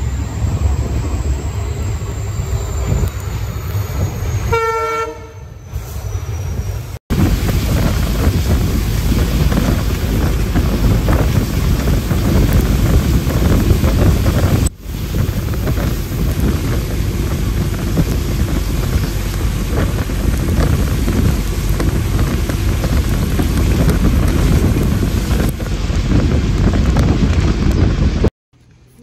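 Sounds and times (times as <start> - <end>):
bus road and engine noise: 0.0 - 29.0
wind buffeting microphone: 6.2 - 28.3.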